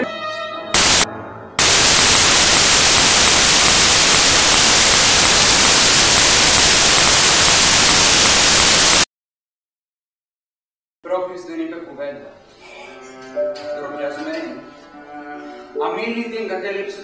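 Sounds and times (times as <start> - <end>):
loud static hiss: 0.8 - 9.1.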